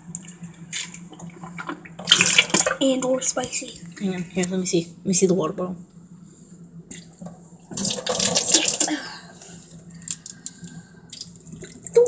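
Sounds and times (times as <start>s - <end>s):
water splashing into metal sink: 0.8s - 2.8s, 7.7s - 9.0s.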